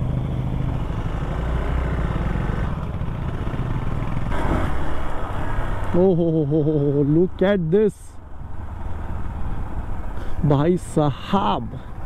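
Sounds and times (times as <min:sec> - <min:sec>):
motorcycle engine running: 0:00.0 - 0:05.4.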